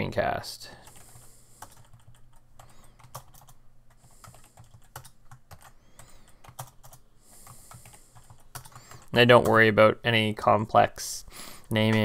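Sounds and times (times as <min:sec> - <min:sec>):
keyboard typing: 0:00.8 - 0:09.6.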